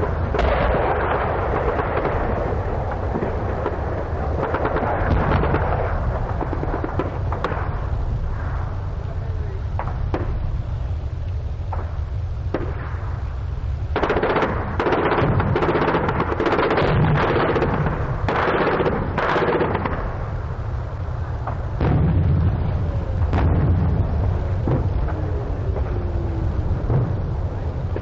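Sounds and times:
machine-gun fire: 0.0s - 7.7s, 13.9s - 20.2s
low rumble: 0.0s - 28.0s.

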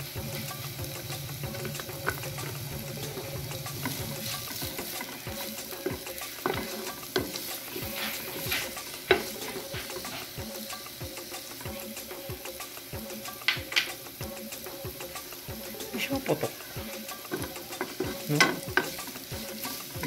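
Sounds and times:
onions sizzling in oil: 0.0s - 20.0s
wooden spatula knocking on pan: 3.8s - 7.4s, 8.4s - 10.0s, 17.3s - 19.0s.

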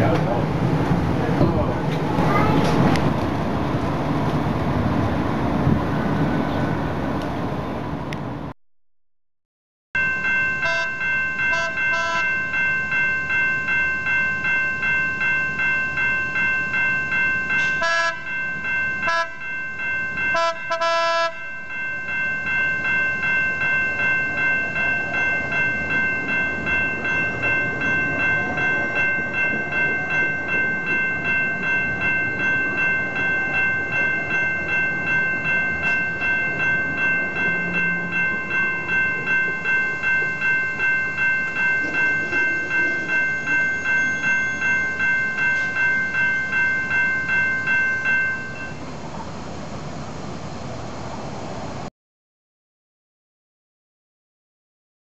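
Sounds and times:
tram rumbling over rails: 0.0s - 8.5s, 10.0s - 51.9s
level crossing bell ringing: 10.0s - 48.9s
tram horn blasts: 10.6s - 12.3s, 17.6s - 18.4s, 19.0s - 19.5s, 20.3s - 21.5s.

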